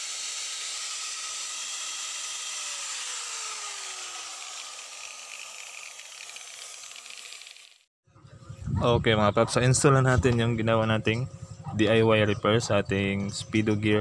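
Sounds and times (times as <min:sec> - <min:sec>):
angle grinder whining: 0:00.0 - 0:07.9.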